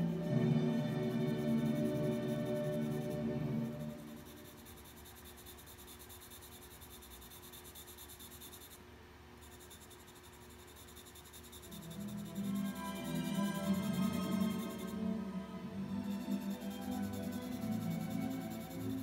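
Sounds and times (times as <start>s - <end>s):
background music: 0.0s - 4.6s, 11.7s - 19.0s
pencil scratching on paper: 0.2s - 8.8s, 9.4s - 15.0s, 15.9s - 19.0s.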